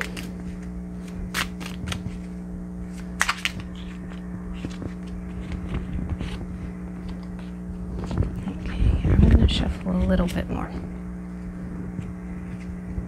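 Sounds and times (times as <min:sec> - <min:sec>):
playing cards shuffled by hand: 0:00.0 - 0:08.3
low hum: 0:00.0 - 0:13.0.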